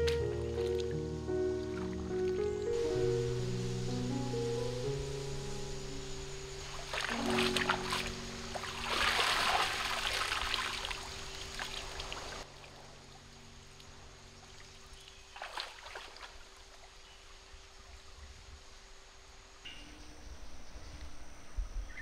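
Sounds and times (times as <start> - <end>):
flowing stream: 0.0 - 19.6
water splashing and sloshing: 6.1 - 18.0.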